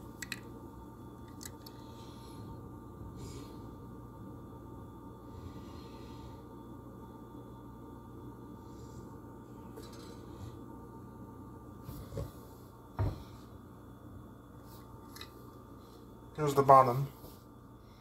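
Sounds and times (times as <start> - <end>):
steady low hum: 0.0 - 18.0
toy car handling noise: 0.2 - 0.5.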